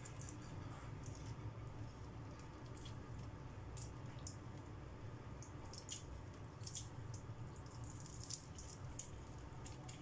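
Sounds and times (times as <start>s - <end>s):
faint chewing: 0.0s - 4.7s
low room hum: 0.0s - 10.0s.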